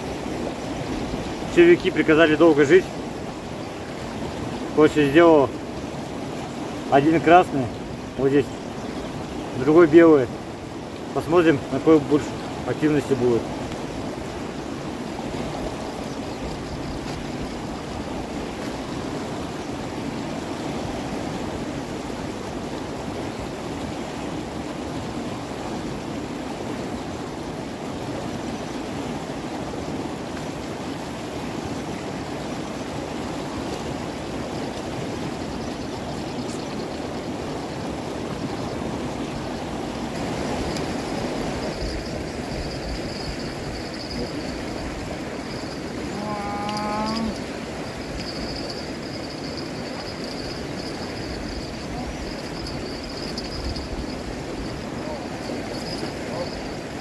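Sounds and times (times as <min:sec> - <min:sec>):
water flowing: 0:00.0 - 0:57.0
faint high-pitched thin sound: 0:46.1 - 0:47.5.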